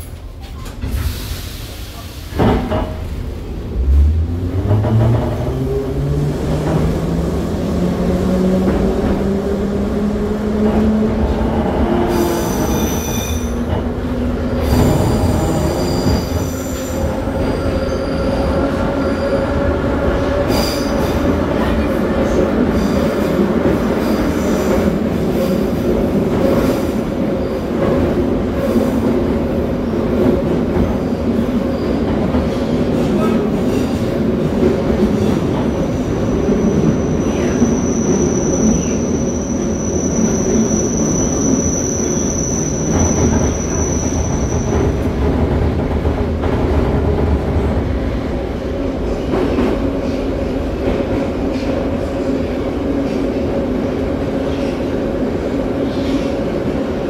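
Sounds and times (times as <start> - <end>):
train wheels rumbling on rails: 0.0 - 57.0.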